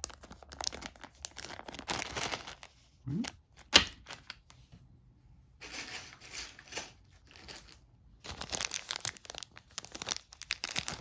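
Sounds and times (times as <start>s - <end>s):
plastic bag crinkling: 0.0s - 2.8s, 5.6s - 11.0s.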